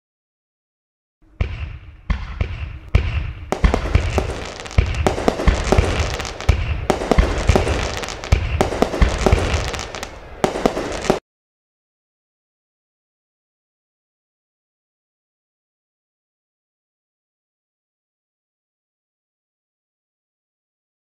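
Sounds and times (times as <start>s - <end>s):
fireworks booms and bangs: 1.3s - 11.2s
fireworks crackling: 1.4s - 11.2s.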